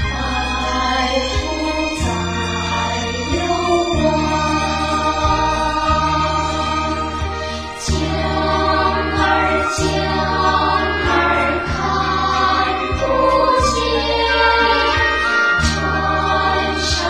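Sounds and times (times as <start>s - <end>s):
choir singing slow song: 0.0s - 17.0s
instrumental accompaniment: 0.0s - 17.0s.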